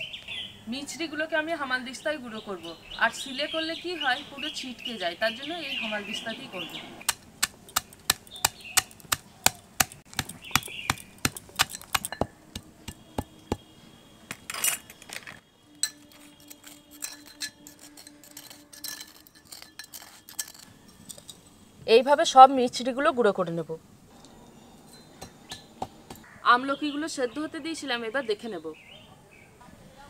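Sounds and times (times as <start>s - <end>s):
pestle striking metal mortar: 7.0s - 13.6s, 25.2s - 26.3s.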